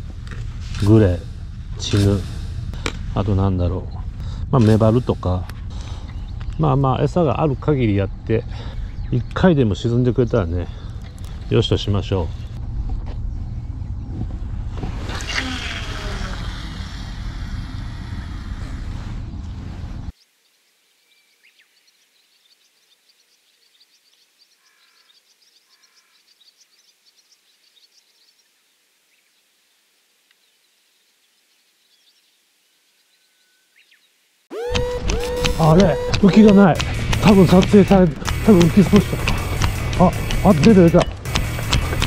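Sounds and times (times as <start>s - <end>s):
bird chirps: 3.8s - 12.6s, 20.2s - 29.5s, 30.4s - 34.2s.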